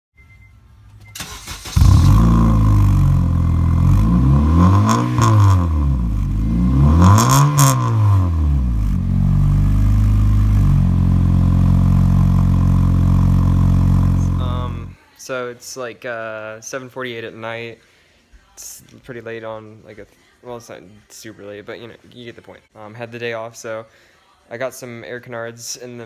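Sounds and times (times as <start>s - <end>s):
car engine starting and revving: 1.2s - 15.0s
car engine idling: 1.3s - 15.0s.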